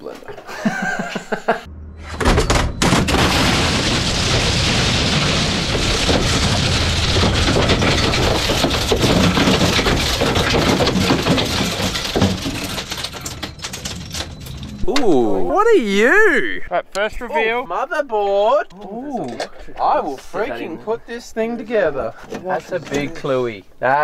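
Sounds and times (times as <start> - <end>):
plastic breaking and clattering: 2.2 - 15.0.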